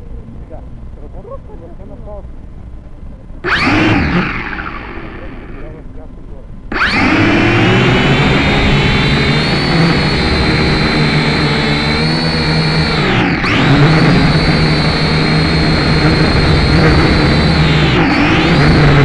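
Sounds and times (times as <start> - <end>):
model aircraft motor whine: 3.4 - 5.8, 6.7 - 19.0.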